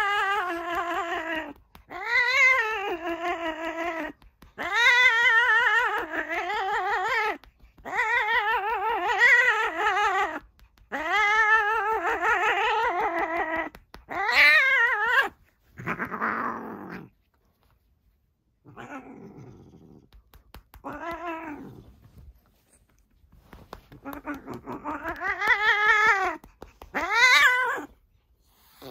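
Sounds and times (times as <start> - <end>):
cat yowling: 0.0 - 17.0, 20.8 - 21.8, 24.0 - 27.9
cat making rough biting sound: 23.8 - 27.8.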